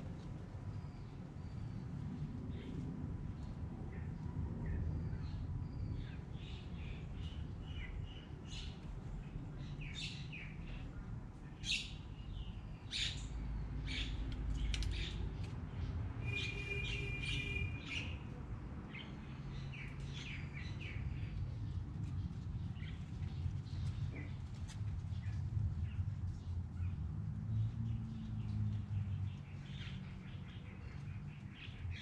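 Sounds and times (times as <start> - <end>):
small birds chirping: 18.9 - 32.0.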